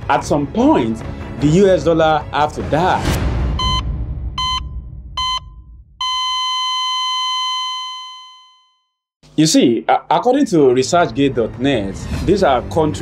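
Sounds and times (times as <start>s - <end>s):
heart monitor beeps: 3.6s - 8.8s
flatline tone: 4.4s - 9.0s.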